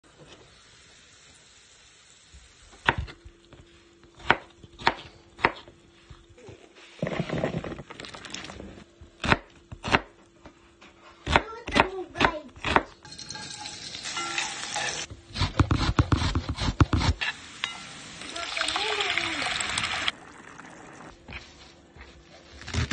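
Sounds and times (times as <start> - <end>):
knife chopping on a board: 4.2 - 5.7, 11.2 - 12.9, 15.4 - 17.2
potatoes tumbling into a pot: 7.0 - 8.9.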